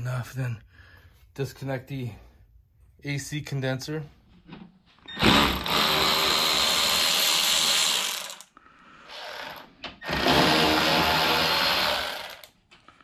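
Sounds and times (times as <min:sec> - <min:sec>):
cordless electric ratchet spinning: 0:05.2 - 0:08.5, 0:09.2 - 0:12.5.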